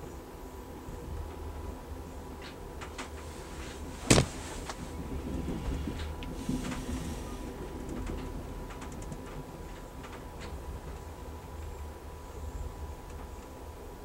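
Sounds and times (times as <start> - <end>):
train car rumbling on track: 0.0 - 14.0
faint clicks and ticks: 7.8 - 11.9.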